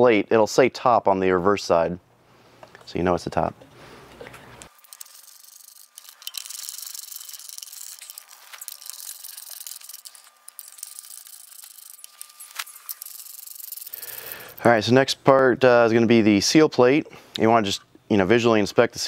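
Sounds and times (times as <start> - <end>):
ratchet wrench: 4.8 - 14.6
steel bolts clicking and rubbing: 4.8 - 14.6.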